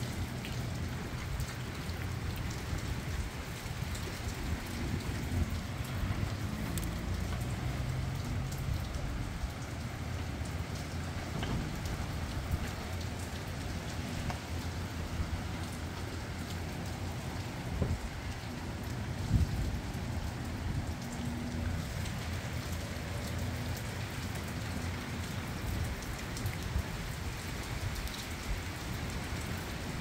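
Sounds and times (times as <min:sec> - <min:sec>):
steady rain: 0:00.0 - 0:30.0
wind rumbling on microphone: 0:01.0 - 0:09.9, 0:13.9 - 0:22.5.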